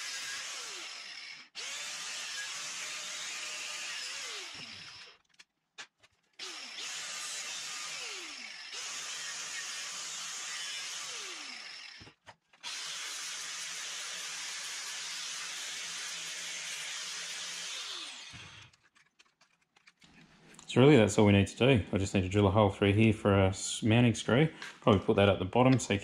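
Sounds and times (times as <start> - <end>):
angle grinder cutting plastic: 0.0 - 20.3.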